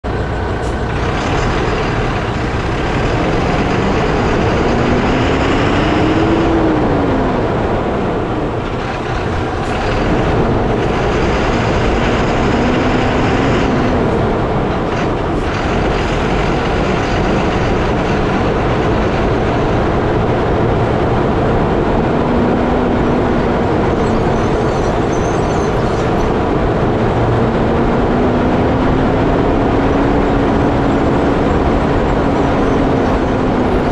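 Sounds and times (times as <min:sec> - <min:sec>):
low hum rising and falling: 0:00.0 - 0:25.2
tyres rumbling on road: 0:00.0 - 0:33.9.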